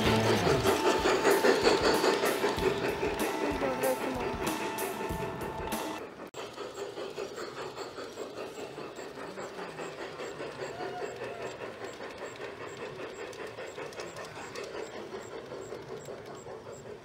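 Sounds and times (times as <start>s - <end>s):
model steam locomotive chuffing: 0.0s - 17.0s
wheels running on track: 0.0s - 17.0s.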